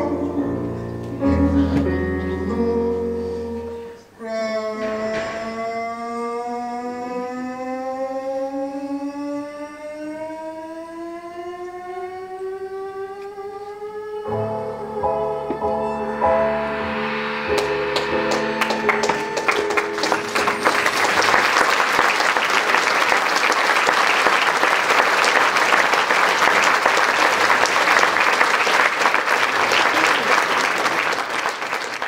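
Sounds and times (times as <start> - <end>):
band final held chord: 14.3 - 23.1
audience applause: 17.6 - 32.0.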